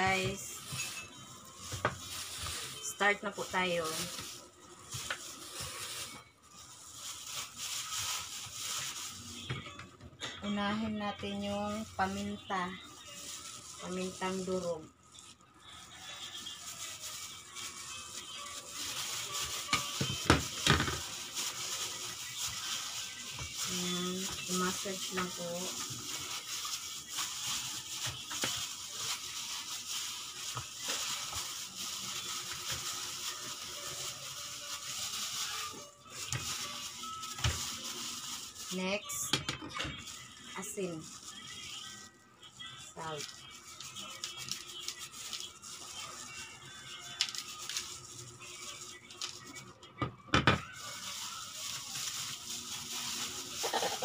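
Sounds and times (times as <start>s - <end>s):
plastic bag crinkling: 0.0s - 49.8s, 50.6s - 54.0s
gloved hand rustling: 0.1s - 3.0s, 3.8s - 9.4s.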